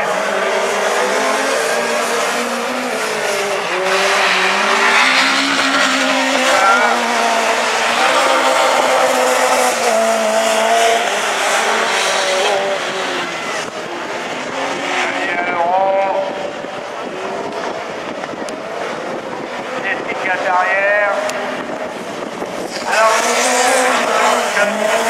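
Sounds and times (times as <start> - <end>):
race car engines revving: 0.0 - 25.0.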